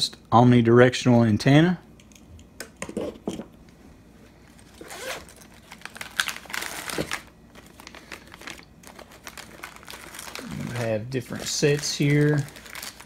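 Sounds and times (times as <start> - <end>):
plastic bags crinkling: 4.6 - 13.0.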